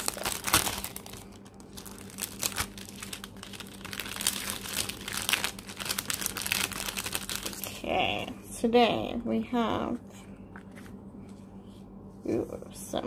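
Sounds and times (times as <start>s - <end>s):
cellophane sleeve crinkling: 0.0s - 7.9s.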